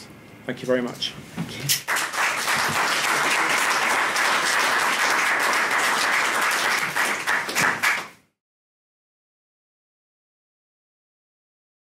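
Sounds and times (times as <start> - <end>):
audience applauding: 1.7 - 8.2.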